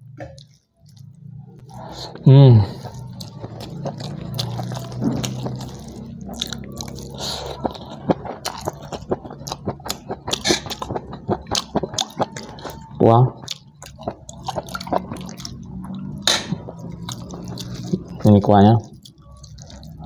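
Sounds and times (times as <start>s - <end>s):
chewing with wet mouth smacks: 0.2s - 20.0s.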